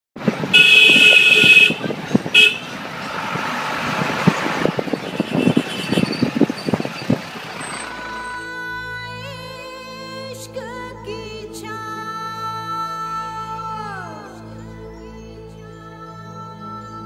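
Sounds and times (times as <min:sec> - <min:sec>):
moving vehicle running noise: 0:00.2 - 0:10.5
short horn toot: 0:00.5 - 0:01.8, 0:02.4 - 0:02.7
vehicle horn blast: 0:00.5 - 0:02.8, 0:05.0 - 0:06.3.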